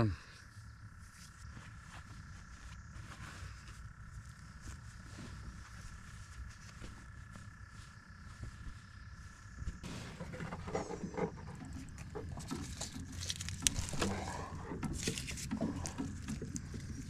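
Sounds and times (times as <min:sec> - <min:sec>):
blanket rustling: 0:01.3 - 0:10.0.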